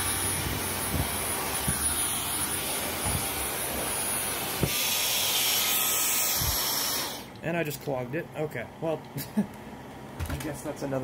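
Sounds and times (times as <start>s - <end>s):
stick vacuum running: 0.0s - 7.6s
vacuum knock: 0.3s - 4.8s.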